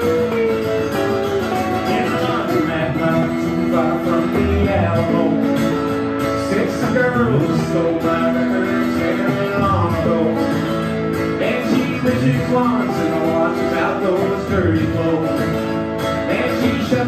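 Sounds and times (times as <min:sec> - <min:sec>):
electric guitar lead with bends: 0:00.0 - 0:17.0
strummed acoustic guitar: 0:00.0 - 0:17.0.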